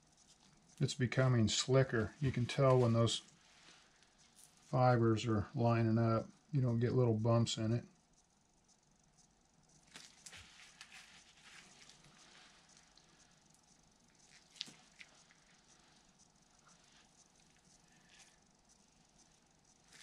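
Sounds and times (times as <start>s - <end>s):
gloved fingers rustling and squishing: 0.0s - 4.8s, 9.7s - 20.0s.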